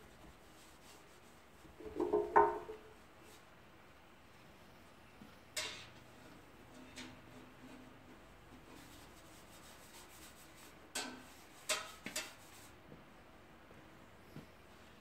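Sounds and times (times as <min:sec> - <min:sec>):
scrubbing sheet metal: 0:00.6 - 0:02.9, 0:08.6 - 0:12.7
tool knocks: 0:01.8 - 0:02.9.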